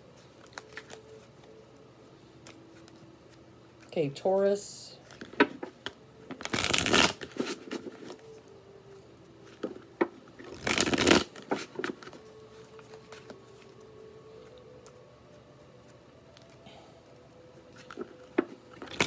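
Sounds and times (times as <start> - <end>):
cards riffling: 0.3 - 1.6, 5.1 - 8.4, 10.4 - 13.8, 17.6 - 19.0.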